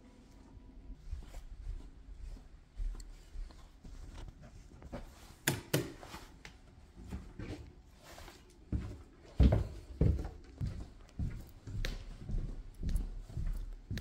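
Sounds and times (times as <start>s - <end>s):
footsteps on hardwood floor: 1.0s - 5.3s, 6.9s - 14.0s.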